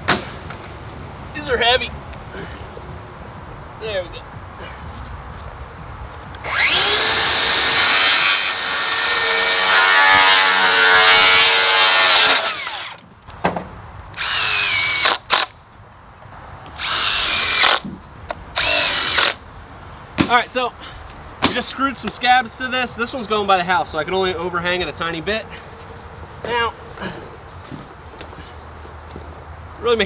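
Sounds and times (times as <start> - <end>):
drill driving screws: 6.4 - 13.0, 14.2 - 15.5, 16.8 - 17.8, 18.6 - 19.4.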